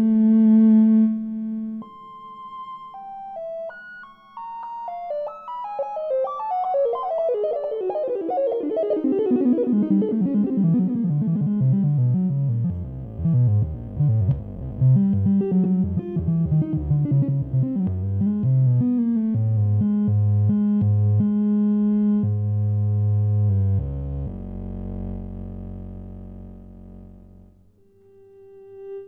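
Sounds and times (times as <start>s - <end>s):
electronic keyboard instrument notes: 0.0s - 29.0s.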